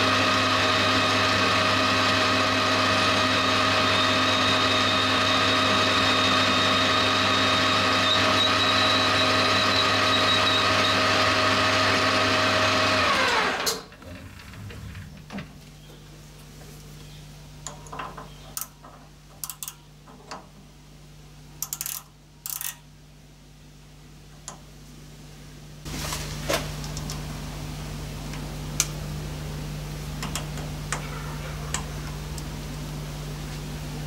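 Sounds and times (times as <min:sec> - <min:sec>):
machine hum: 0:12.5 - 0:20.4
low hum: 0:13.9 - 0:16.4
metal parts clicking and clinking: 0:17.7 - 0:20.3, 0:21.6 - 0:22.8.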